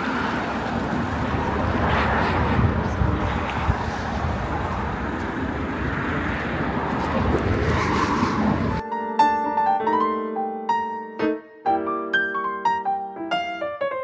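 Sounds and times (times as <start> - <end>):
road train engine rumbling: 0.0 - 8.8.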